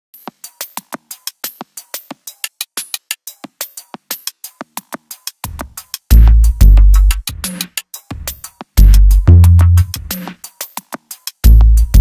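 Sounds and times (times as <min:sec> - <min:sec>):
drum machine beat: 0:00.2 - 0:12.0
deep bass line: 0:06.1 - 0:07.2, 0:08.8 - 0:10.0, 0:11.5 - 0:12.0.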